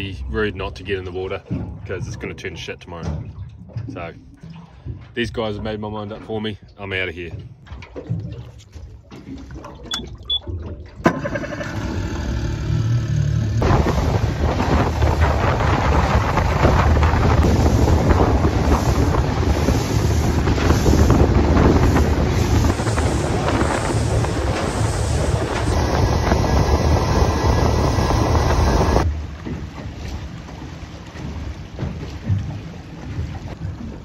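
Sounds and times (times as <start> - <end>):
boat engine running: 0.0 - 34.0
rush of wind and water: 0.0 - 34.0
short beeps: 9.9 - 10.5.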